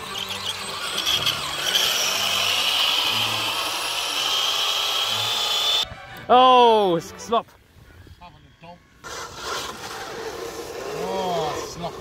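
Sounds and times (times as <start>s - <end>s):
electric motor whining: 0.0s - 5.8s.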